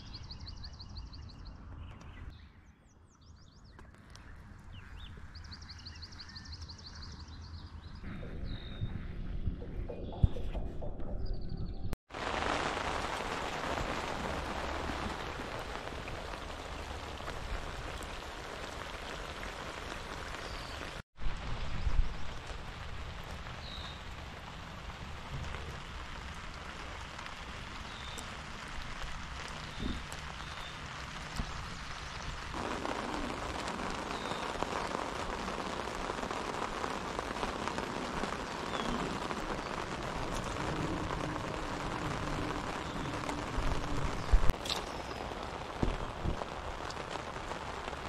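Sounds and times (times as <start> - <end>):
steady rain falling: 12.1 - 48.0.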